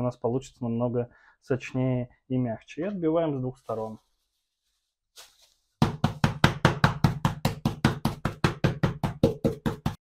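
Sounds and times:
wooden mallet pounding meat: 5.8 - 10.0.

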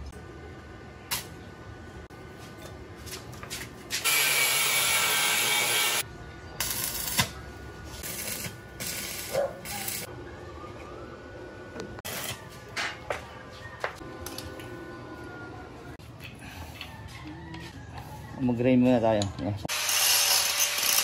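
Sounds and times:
welding arc sizzling: 3.9 - 6.0, 6.6 - 10.1, 12.0 - 12.5, 19.7 - 21.0.

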